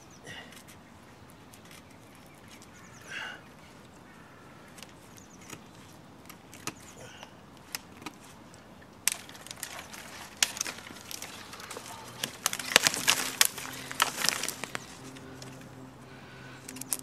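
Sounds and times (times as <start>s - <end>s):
dry twigs crackling underfoot: 0.2s - 17.0s
knife cracking dead branch: 9.0s - 15.8s, 16.6s - 17.0s.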